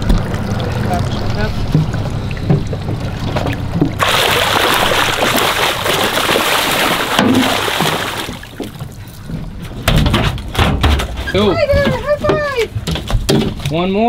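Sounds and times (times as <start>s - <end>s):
fish splashing heavily: 4.0s - 8.8s.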